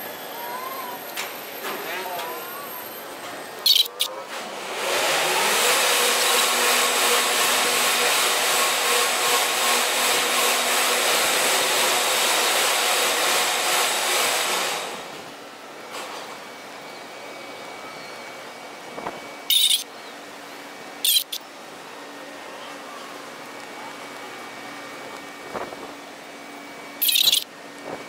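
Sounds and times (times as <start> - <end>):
bridge machinery motor whirring: 19.5 - 19.8, 21.0 - 21.4, 27.0 - 27.5.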